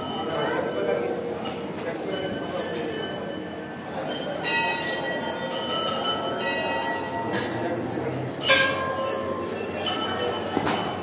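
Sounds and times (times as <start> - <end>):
temple bells ringing: 0.0 - 11.0.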